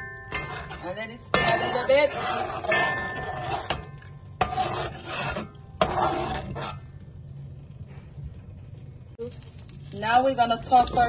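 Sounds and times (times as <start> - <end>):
metal spatula scraping a pot: 0.0 - 7.0.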